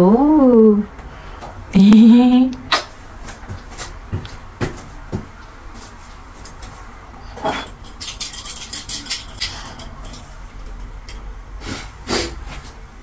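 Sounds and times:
utensils clicking and rattling: 0:07.4 - 0:11.3.

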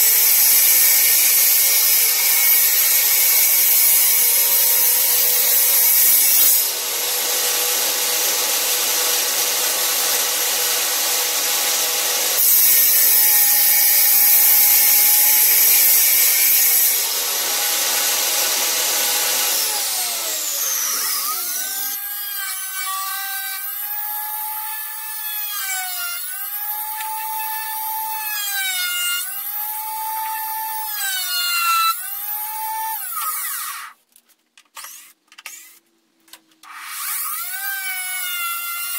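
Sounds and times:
table saw cutting wood: 0:00.0 - 0:34.0, 0:36.6 - 0:38.9.

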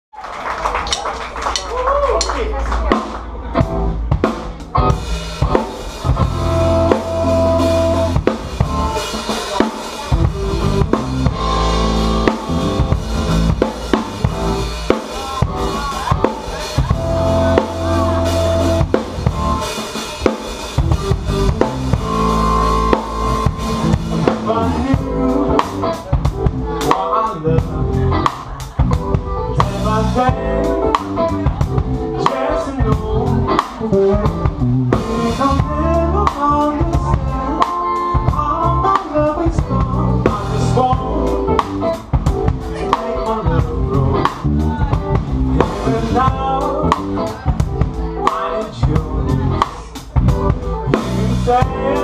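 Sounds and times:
live band playing: 0:00.2 - 0:52.0
drum kit beat: 0:00.8 - 0:52.0.

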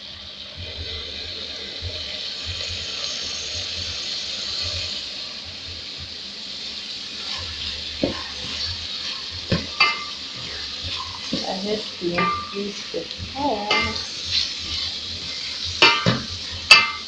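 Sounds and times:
vegetables sizzling in pot: 0:00.0 - 0:17.0
wooden spoon stirring: 0:07.2 - 0:17.0.

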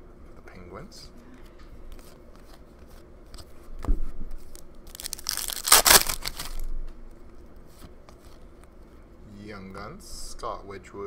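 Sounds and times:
foil wrapper tearing and crinkling: 0:04.5 - 0:06.7.

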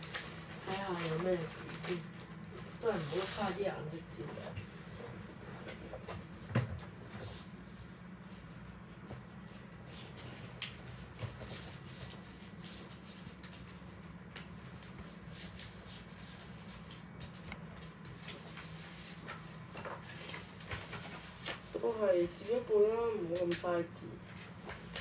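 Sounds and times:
paper rustling: 0:00.0 - 0:04.5, 0:14.4 - 0:23.6, 0:24.3 - 0:25.0
steady low hum: 0:00.0 - 0:25.0.

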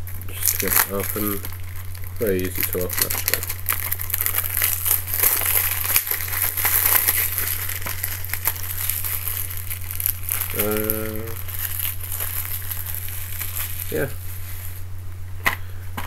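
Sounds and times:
plastic wrap crinkling and tearing: 0:00.0 - 0:14.9
person humming: 0:10.5 - 0:11.4.

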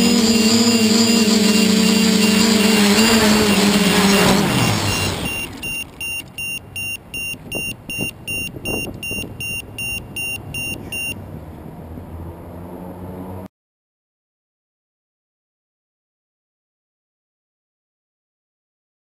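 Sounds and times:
electronic buzzer beeping: 0:00.1 - 0:11.2.

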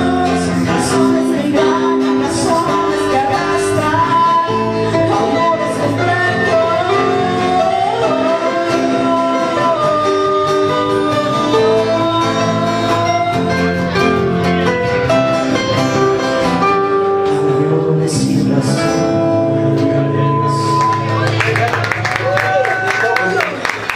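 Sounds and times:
man singing into a microphone: 0:00.0 - 0:14.2, 0:16.9 - 0:21.1
acoustic guitars strummed: 0:00.0 - 0:21.5.

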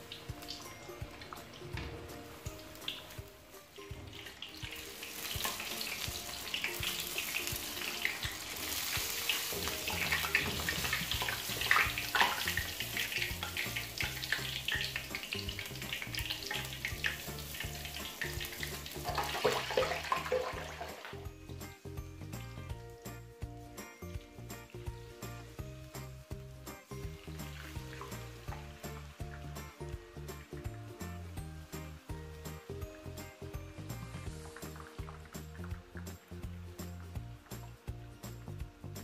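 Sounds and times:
oil sizzling and crackling: 0:00.0 - 0:39.0.

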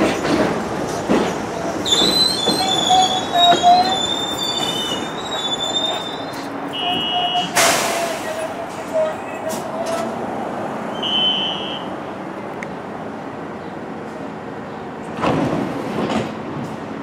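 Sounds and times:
train rumbling on track: 0:00.0 - 0:17.0
train wheels squealing on rails: 0:01.1 - 0:10.1, 0:10.9 - 0:11.9.

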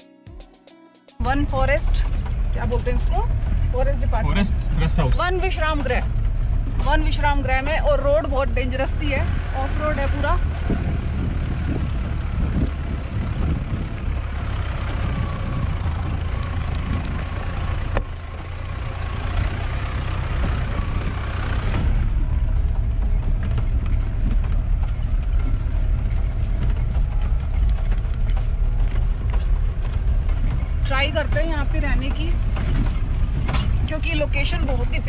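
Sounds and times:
car engine and road rumble: 0:01.2 - 0:35.0
rushing road noise: 0:01.2 - 0:35.0
small rattles and clicks: 0:05.0 - 0:35.0.

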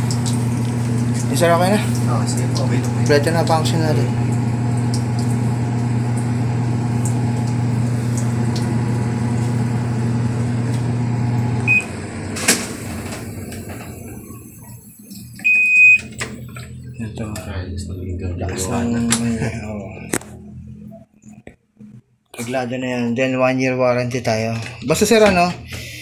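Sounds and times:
washing machine motor hum: 0:00.0 - 0:22.0, 0:24.2 - 0:26.0
control panel beeps: 0:11.7 - 0:11.9, 0:15.4 - 0:16.1.

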